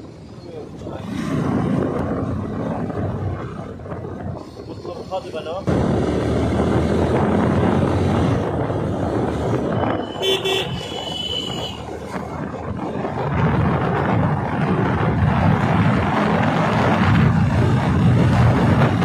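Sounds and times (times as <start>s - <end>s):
wind rushing over microphone: 0.0s - 19.0s
vehicle horn toot: 9.9s - 11.8s.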